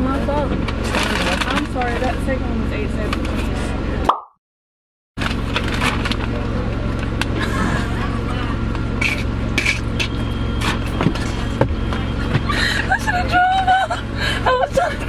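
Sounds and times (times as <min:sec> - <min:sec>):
paper bags rustling: 0:00.8 - 0:02.1
low hum inside car: 0:05.2 - 0:15.0
people laughing: 0:07.3 - 0:08.7, 0:12.2 - 0:15.0.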